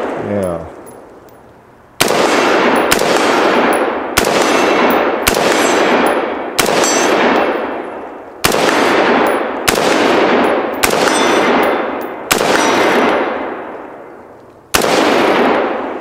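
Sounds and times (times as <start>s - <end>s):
rifle shots with echo: 0.0s - 0.8s, 2.0s - 16.0s
ring of struck steel targets: 2.3s - 8.0s, 8.7s - 13.4s.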